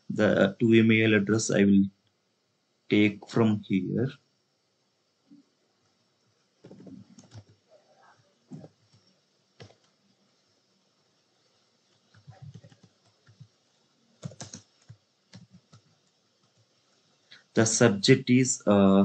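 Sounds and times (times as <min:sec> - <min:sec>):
faint keyboard typing: 0:06.6 - 0:10.0, 0:11.8 - 0:13.6, 0:14.2 - 0:17.5.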